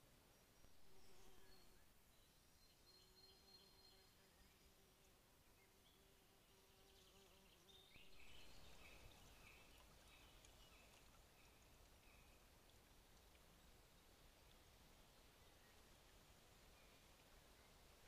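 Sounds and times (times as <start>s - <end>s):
insect buzzing: 0.8s - 1.8s.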